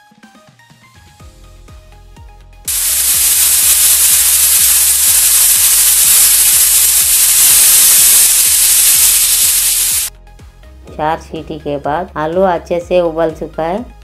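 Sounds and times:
pressure cooker whistling: 0:02.7 - 0:10.1.

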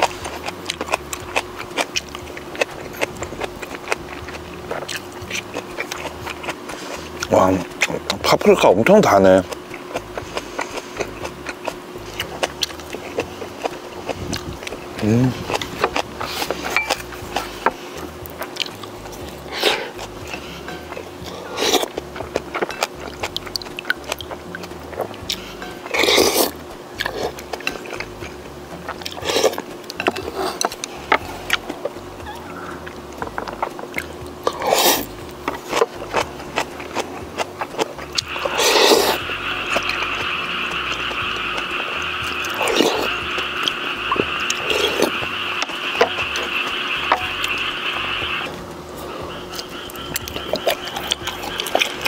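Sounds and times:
chewing and slurping: 0:00.0 - 0:52.0
buzzing animal call: 0:32.1 - 0:33.0, 0:38.0 - 0:52.0.

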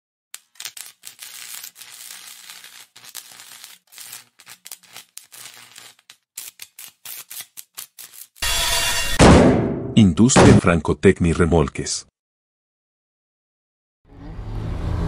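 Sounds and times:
electric arc welding crackle: 0:00.4 - 0:09.2.

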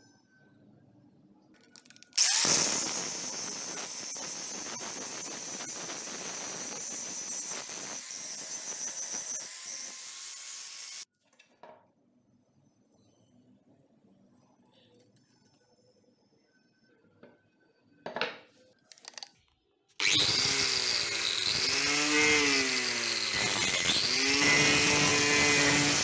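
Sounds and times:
angle grinder grinding steel: 0:02.2 - 0:11.1, 0:20.0 - 0:26.0.

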